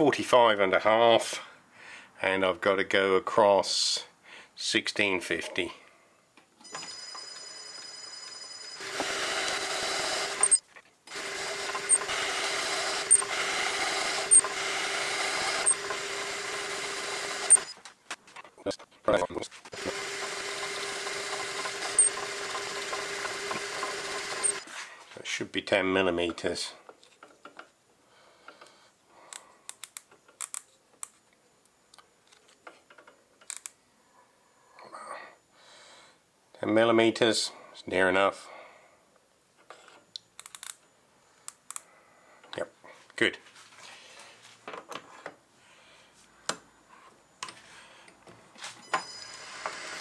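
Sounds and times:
lathe motor whine: 8.7s - 17.7s, 19.8s - 24.6s, 49.0s - 50.0s
lathe tool scraping metal: 8.8s - 16.4s, 19.8s - 24.7s.

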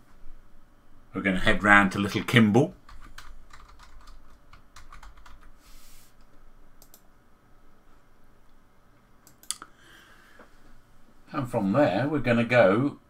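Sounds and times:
computer keyboard typing: 2.8s - 5.5s.

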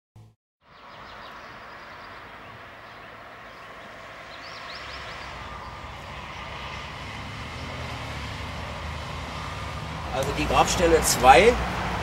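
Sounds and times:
birds chirping: 0.6s - 9.6s
road traffic noise: 0.6s - 12.0s
vehicle approaching rumble: 0.6s - 12.0s.

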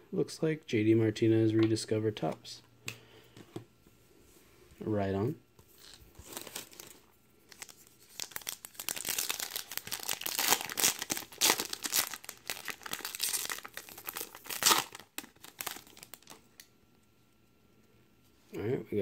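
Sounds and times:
foil wrapper crinkling and tearing: 5.8s - 16.4s.

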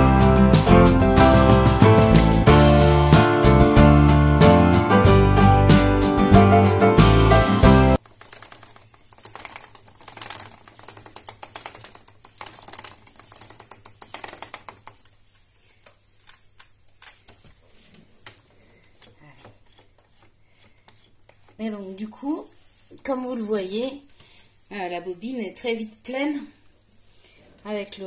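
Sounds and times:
loud background music: 0.0s - 8.0s
spinning wheel rattling and clicking: 8.0s - 15.1s
ticks and knocks of bobbin: 8.1s - 15.1s.

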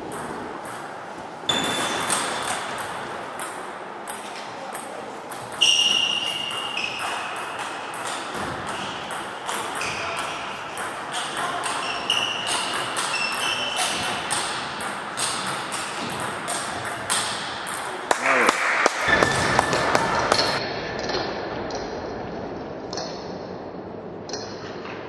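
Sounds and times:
table tennis balls clicking: 0.0s - 21.9s.

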